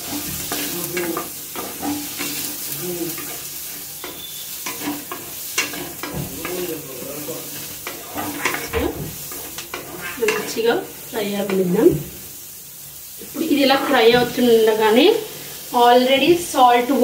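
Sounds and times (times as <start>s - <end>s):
spatula scraping and clicking pan: 0.0s - 6.8s, 7.5s - 10.6s
vegetables sizzling in pan: 0.0s - 17.0s.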